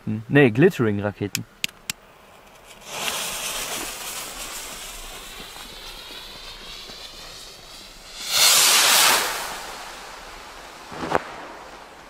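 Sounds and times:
skyrockets hissing: 0:01.8 - 0:11.8.

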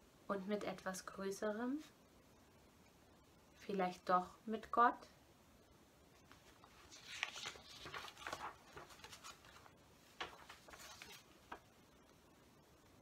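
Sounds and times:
faint rustling: 0:06.1 - 0:12.2.

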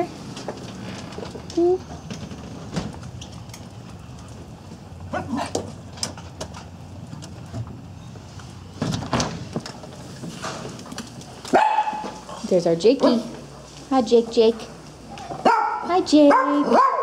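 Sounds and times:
door opening: 0:00.3 - 0:03.7.

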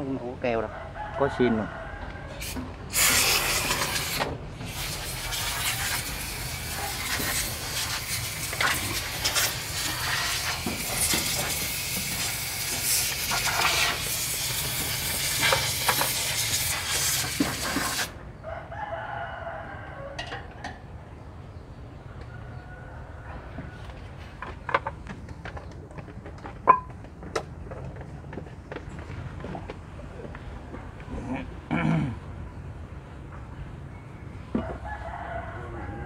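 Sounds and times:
loud steady hiss: 0:02.4 - 0:18.2.

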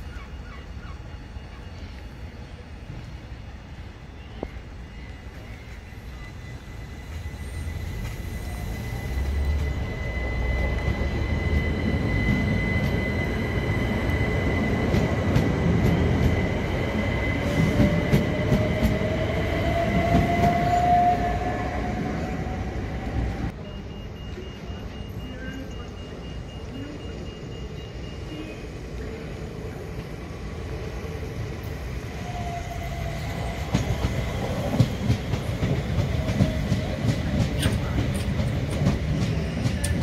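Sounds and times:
electric train passing: 0:00.0 - 0:40.0
high-pitched squeal: 0:03.8 - 0:23.5.

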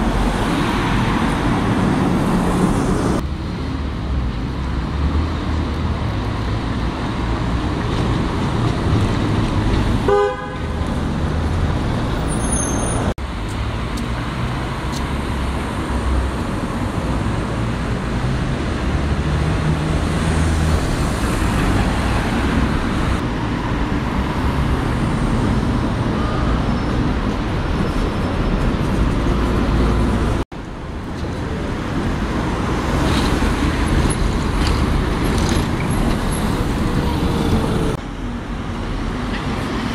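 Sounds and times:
buses and cars passing: 0:00.0 - 0:39.9
car horn toot: 0:10.1 - 0:10.8.

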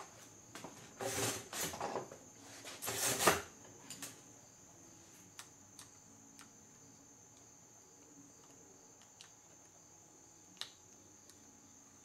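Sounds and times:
hand tool rustling and scraping: 0:00.6 - 0:04.1.

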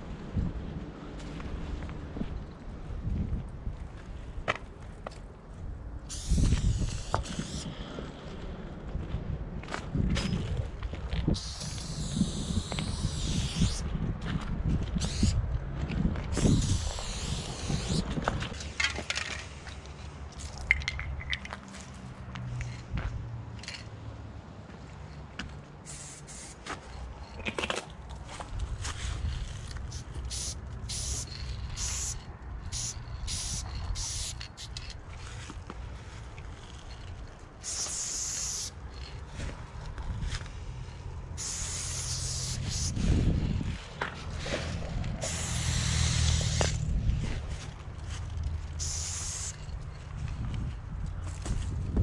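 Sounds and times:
spray paint can hissing: 0:06.0 - 0:07.7, 0:11.3 - 0:13.9, 0:15.0 - 0:15.4, 0:16.3 - 0:18.6, 0:25.8 - 0:26.7, 0:29.8 - 0:35.0, 0:37.6 - 0:38.8, 0:41.4 - 0:43.2, 0:45.1 - 0:46.9, 0:48.7 - 0:49.8
footsteps crunching over dry leaves: 0:28.2 - 0:30.3.

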